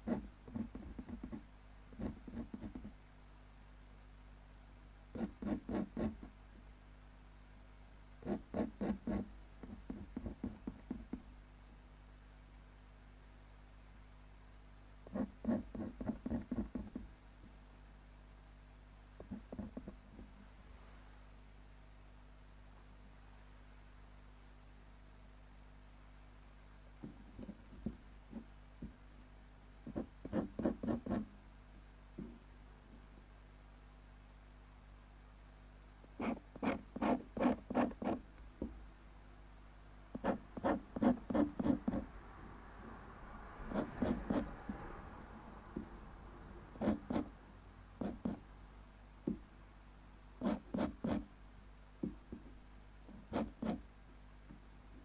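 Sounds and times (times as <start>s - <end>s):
pen nib scratching on paper: 0.0s - 2.9s, 5.1s - 6.3s, 8.2s - 11.2s, 15.0s - 17.0s, 19.2s - 20.3s, 27.4s - 28.5s, 29.8s - 31.3s, 36.2s - 38.2s, 40.1s - 42.1s, 43.7s - 44.6s, 46.8s - 47.4s, 48.0s - 48.4s, 50.4s - 51.3s, 53.2s - 53.8s.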